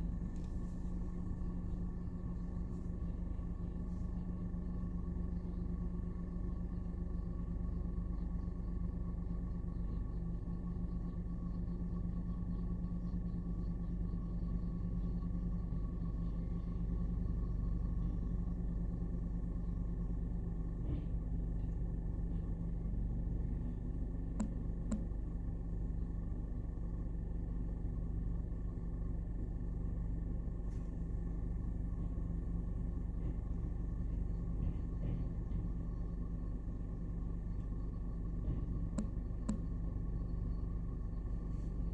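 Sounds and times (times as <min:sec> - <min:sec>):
garbage truck diesel engine running: 0:15.4 - 0:41.9.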